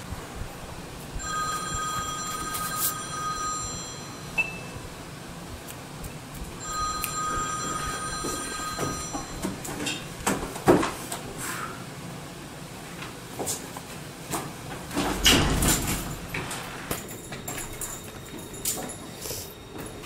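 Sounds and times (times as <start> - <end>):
telephone ringing: 1.2 - 4.8, 6.6 - 9.8.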